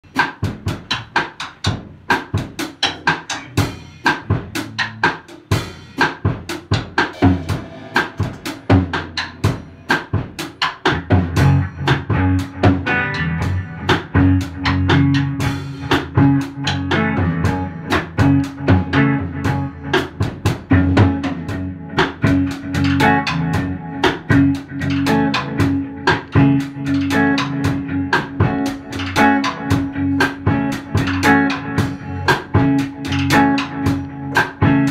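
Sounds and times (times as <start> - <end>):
drum kit beat: 0.0 - 34.9
electric guitar notes: 7.1 - 34.9.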